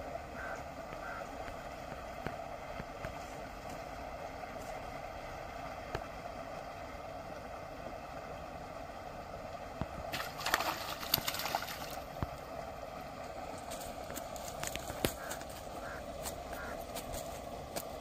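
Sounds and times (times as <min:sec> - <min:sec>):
steady background hiss: 0:00.0 - 0:18.0
fish thrashing and splashing: 0:10.1 - 0:12.1.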